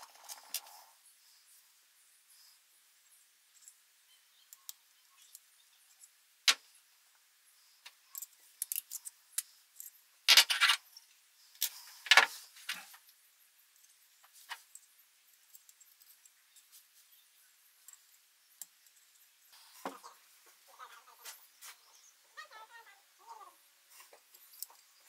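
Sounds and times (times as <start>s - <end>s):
small metal parts clinking: 7.8s - 12.3s
metal parts clattering and jingling: 8.1s - 10.8s.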